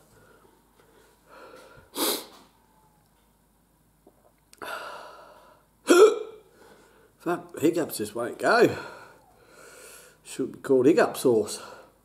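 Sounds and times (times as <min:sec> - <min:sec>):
man breathing hard: 0:00.0 - 0:02.5, 0:04.6 - 0:05.7, 0:08.7 - 0:10.2
man hiccupping: 0:05.8 - 0:06.5.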